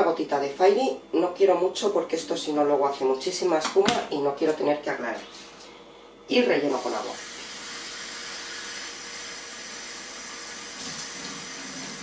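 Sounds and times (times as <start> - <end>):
tap water filling plastic bottle: 10.6 - 12.0.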